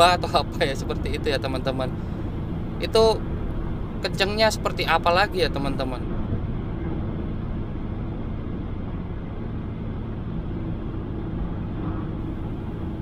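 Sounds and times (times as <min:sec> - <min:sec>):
car cabin rumble on highway: 0:00.0 - 0:13.0.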